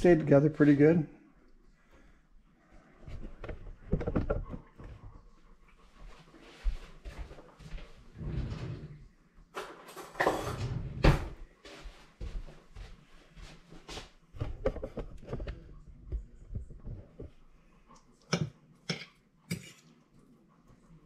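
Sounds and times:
fork on ceramic plate: 18.3s - 19.9s.

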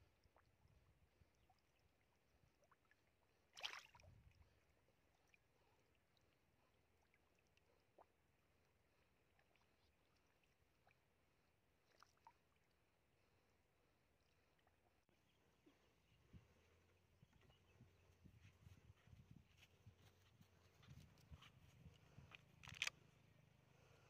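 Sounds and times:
fish splashing in water: 3.5s - 4.0s.

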